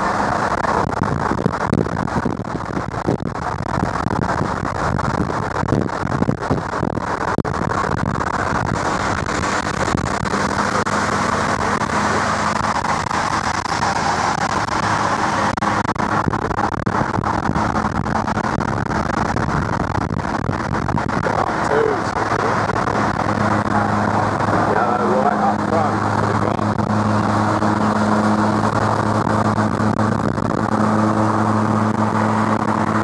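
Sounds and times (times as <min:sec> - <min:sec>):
low engine hum: 0:00.0 - 0:33.0
road and wind rush inside car: 0:00.0 - 0:33.0.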